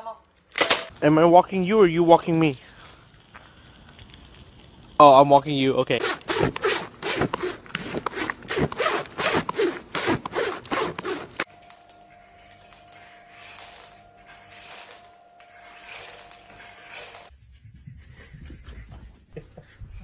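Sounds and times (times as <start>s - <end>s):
soft scratchy sounds: 0.9s - 8.1s
horse muzzle rubbing on microphone: 5.9s - 11.5s.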